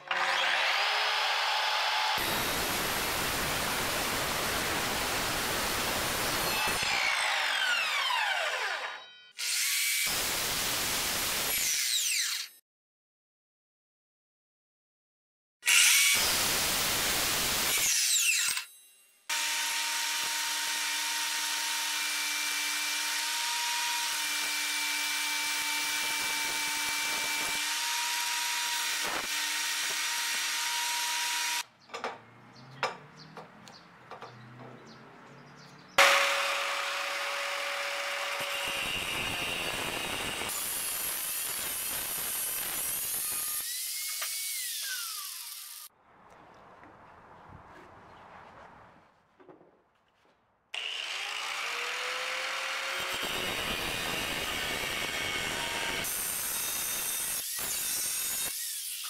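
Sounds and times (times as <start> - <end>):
angle grinder grinding metal: 36.0 - 45.9, 50.8 - 59.0.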